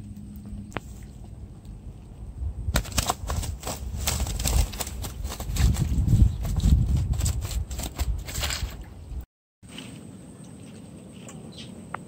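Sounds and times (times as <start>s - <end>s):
net rustling and slapping: 2.7s - 8.8s.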